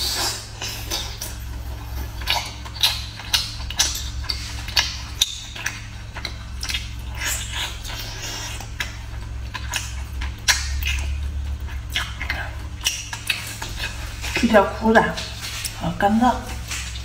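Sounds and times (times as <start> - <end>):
steady low hum: 0.0 - 17.0
wet chewing and mouth smacking: 0.0 - 17.0.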